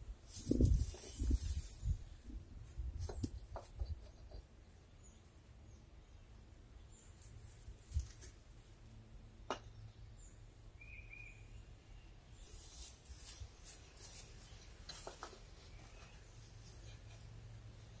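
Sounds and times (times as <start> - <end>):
bird chirp: 3.0 - 8.1, 9.5 - 18.0.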